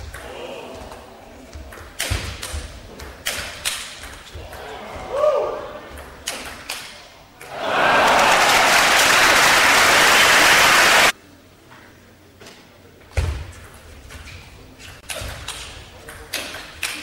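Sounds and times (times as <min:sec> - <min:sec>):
crowd applauding and cheering: 0:07.5 - 0:11.1.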